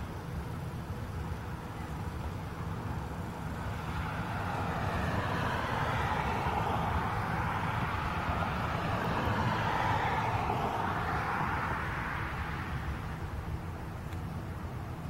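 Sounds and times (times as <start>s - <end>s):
jet engines rushing: 2.9s - 13.9s.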